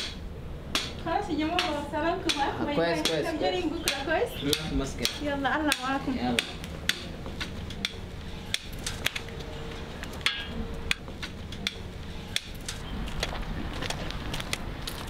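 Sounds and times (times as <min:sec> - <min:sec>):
low steady hum: 0:00.0 - 0:15.0
cane tapping on ground: 0:00.8 - 0:09.2.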